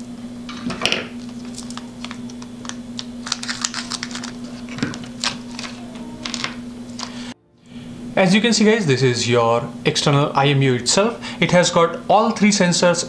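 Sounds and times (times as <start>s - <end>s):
steady low hum: 0.0s - 13.0s
plastic bag crinkling: 1.1s - 7.3s.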